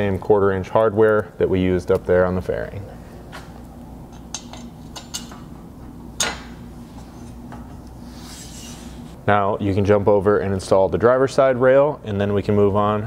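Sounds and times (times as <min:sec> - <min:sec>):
metal clinks and knocks: 0:04.1 - 0:05.5.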